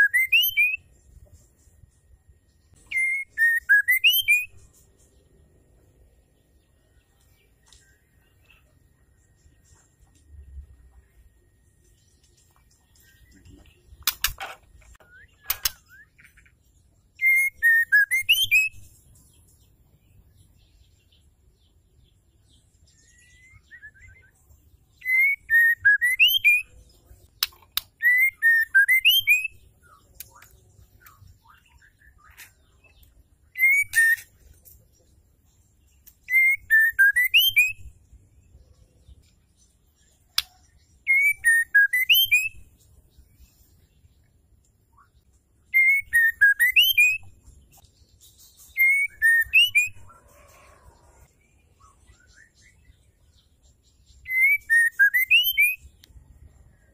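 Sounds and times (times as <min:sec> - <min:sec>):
sharp clicks: 0:14.0 - 0:15.8.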